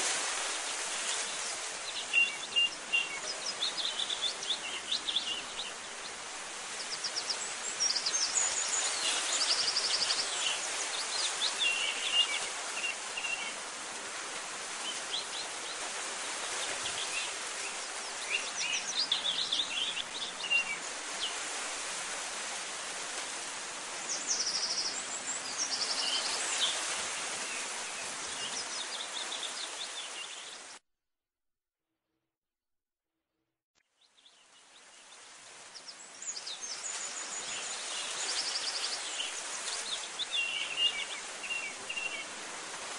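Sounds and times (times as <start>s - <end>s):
songbirds chirping and trilling: 14.6s - 21.6s, 24.0s - 30.7s, 34.0s - 42.4s.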